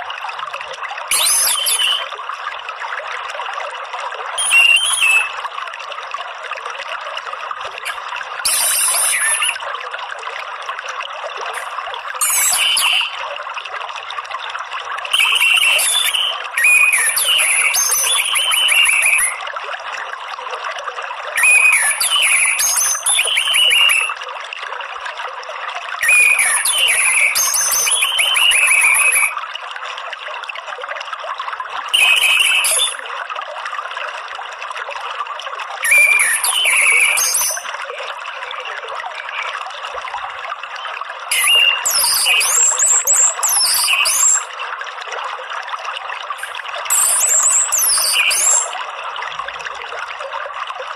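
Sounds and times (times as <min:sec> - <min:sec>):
running water trickling: 0:00.0 - 0:50.9
thrush chattering calls: 0:07.9 - 0:09.6, 0:11.6 - 0:13.2, 0:15.2 - 0:19.4, 0:35.9 - 0:37.6, 0:41.3 - 0:44.4.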